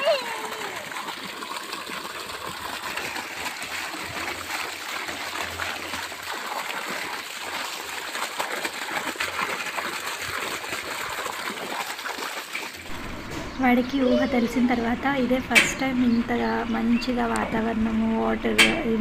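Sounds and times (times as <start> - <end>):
water splashing on hands: 0.0 - 12.9
water gushing from pipe: 0.0 - 19.0.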